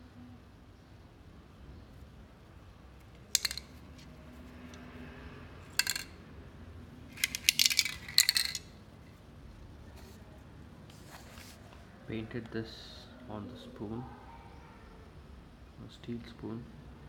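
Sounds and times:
spray can ball rattling: 3.2s - 4.8s, 5.7s - 6.2s, 7.1s - 8.8s.

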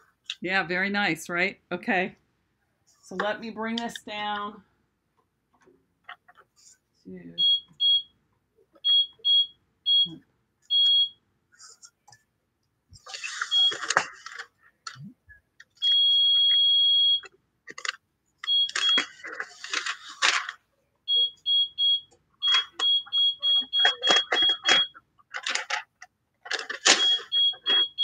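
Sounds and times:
plastic sheet crinkling: 13.0s - 14.5s, 18.6s - 20.6s
high electronic beeps: 21.1s - 25.0s.

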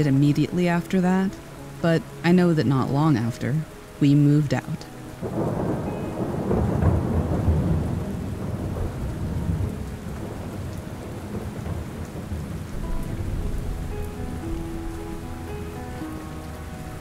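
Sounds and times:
steady rain: 0.0s - 17.0s
rolling thunder: 5.2s - 17.0s.

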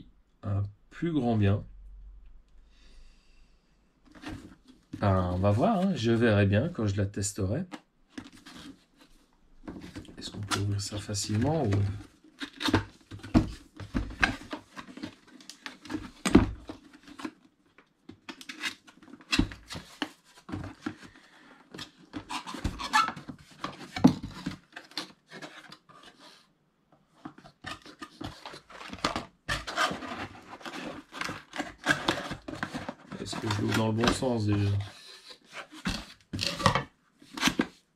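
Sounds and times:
box packaging scraping and knocking: 8.2s - 17.4s, 18.4s - 26.4s, 27.2s - 37.8s.

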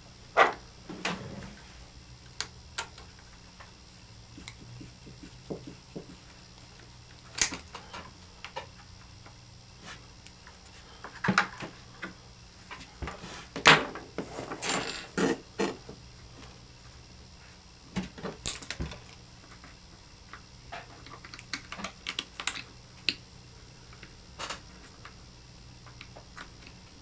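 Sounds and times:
small parts and tools clattering: 13.3s - 15.8s, 18.2s - 19.2s.

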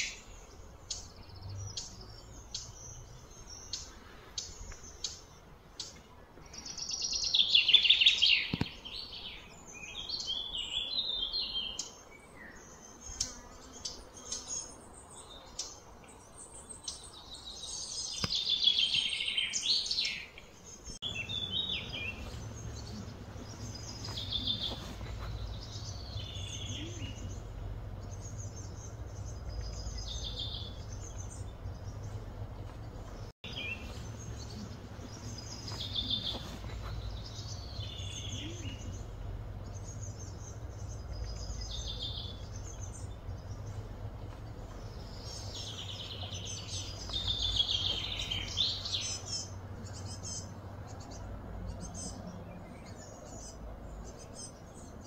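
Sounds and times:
birds singing: 0.0s - 55.0s
steady low hum: 20.4s - 55.0s.

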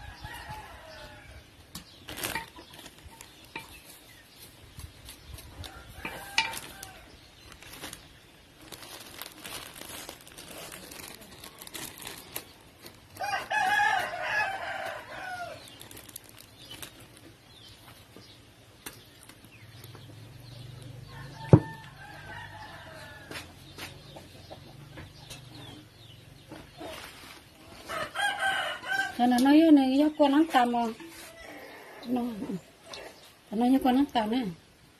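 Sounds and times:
rooster crowing: 13.2s - 15.6s, 21.1s - 23.4s, 27.9s - 29.2s.

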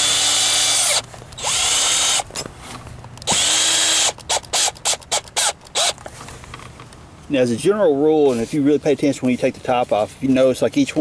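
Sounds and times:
cordless drill driving screws: 0.0s - 2.4s, 3.2s - 6.0s
drill trigger taps: 3.2s - 6.0s.

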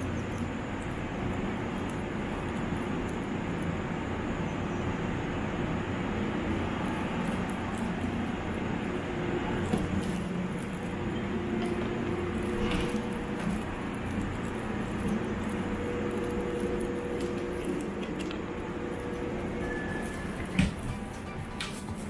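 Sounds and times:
electric train humming: 0.0s - 22.0s.

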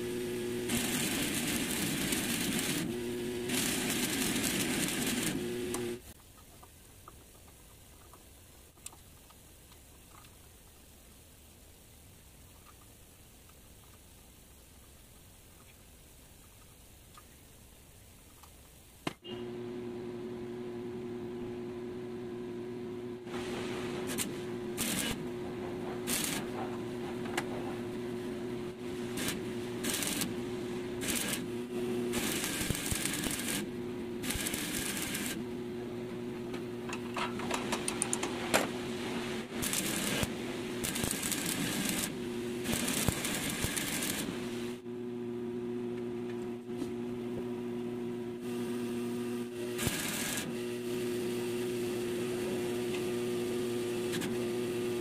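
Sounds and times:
machine hum: 0.0s - 6.2s, 19.2s - 55.0s
welding arc crackling: 0.0s - 6.2s, 23.3s - 25.3s, 26.0s - 27.0s, 28.1s - 35.4s, 37.9s - 44.8s, 49.6s - 50.5s.

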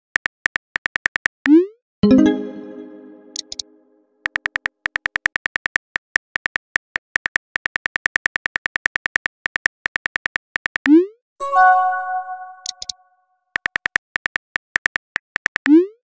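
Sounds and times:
synth chime: 2.0s - 3.8s, 11.4s - 12.8s
phone keyboard typing clicks: 3.3s - 3.6s, 12.6s - 13.0s.

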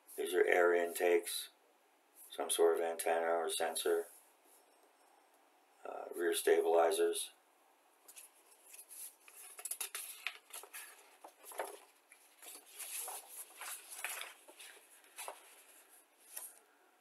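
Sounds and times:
paper rustling and crackling: 8.1s - 16.6s.

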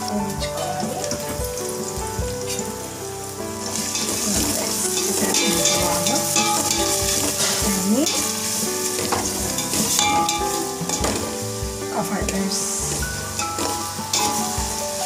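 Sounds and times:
vegetables sizzling in hot oil: 0.0s - 15.0s
spatula stirring in steel pan: 3.7s - 15.0s.

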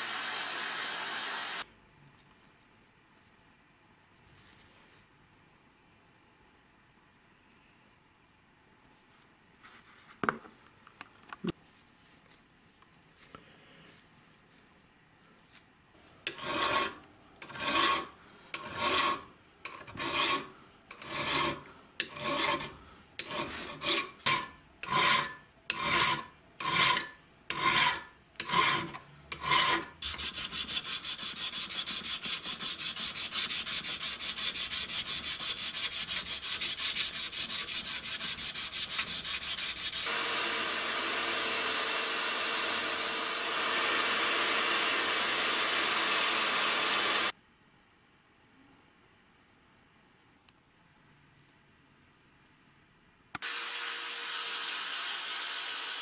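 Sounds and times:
polishing wheel whine: 0.0s - 1.6s, 39.8s - 47.3s
file rasping on metal: 16.3s - 40.2s.

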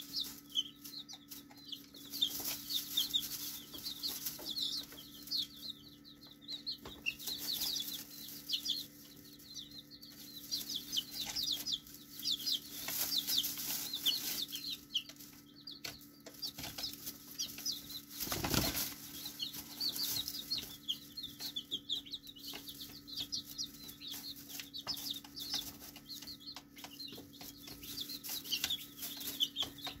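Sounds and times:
chicks peeping: 0.0s - 30.0s
rustles in straw: 2.1s - 5.0s, 10.1s - 15.4s, 16.5s - 21.5s, 28.2s - 29.7s.

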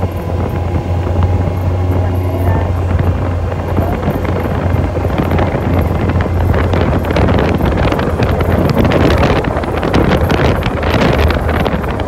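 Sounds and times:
atv engine droning: 0.0s - 12.0s
wind on microphone: 0.0s - 12.0s.

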